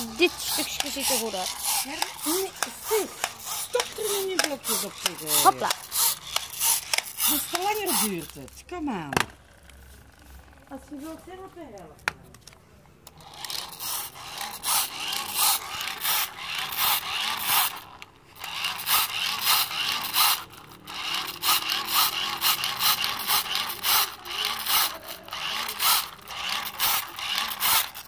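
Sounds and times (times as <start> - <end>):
blower fan rushing air: 0.0 - 8.4.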